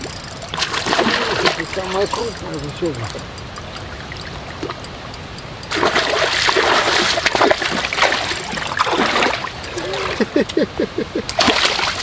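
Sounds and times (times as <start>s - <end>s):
fish splashing in water: 0.0s - 2.4s, 5.7s - 10.2s, 11.3s - 12.0s.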